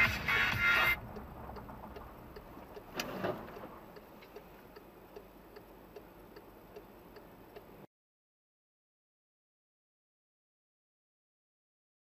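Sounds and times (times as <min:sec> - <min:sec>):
engine and road hum: 0:00.0 - 0:07.9
turn signal ticking: 0:00.0 - 0:07.9.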